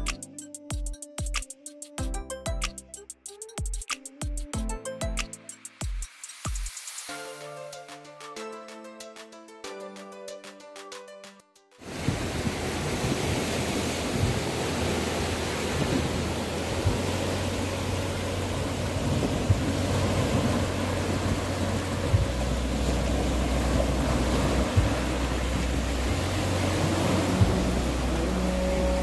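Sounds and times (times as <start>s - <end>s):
waves breaking on pebbly shore: 11.8s - 29.0s
low rumble: 12.1s - 29.0s.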